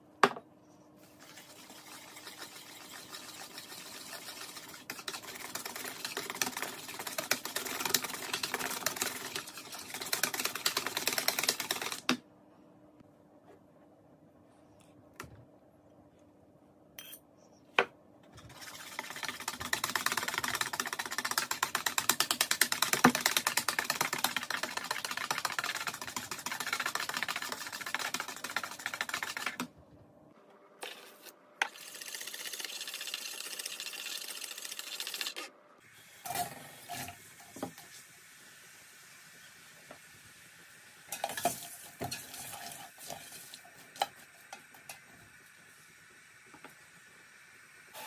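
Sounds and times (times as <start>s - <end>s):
whisk clattering in plastic bowl: 1.3s - 12.1s, 18.5s - 29.7s.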